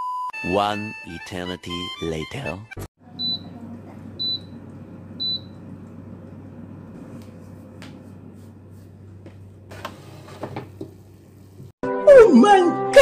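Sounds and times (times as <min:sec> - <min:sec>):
low hum: 0:03.0 - 0:09.9
air fryer short high beeps: 0:03.2 - 0:03.6, 0:04.2 - 0:04.6, 0:05.2 - 0:05.7.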